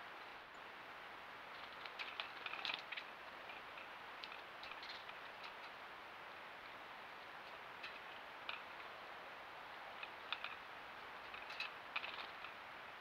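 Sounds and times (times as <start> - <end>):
steady hiss: 0.0 - 13.0
birds tapping on feeder: 11.2 - 12.6.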